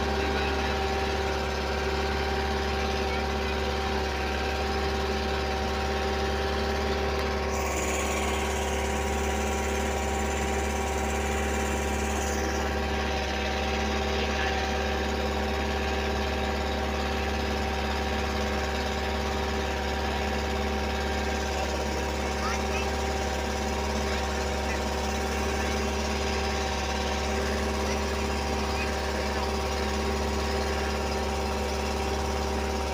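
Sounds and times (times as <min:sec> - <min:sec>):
boat engine humming: 0:00.0 - 0:32.9.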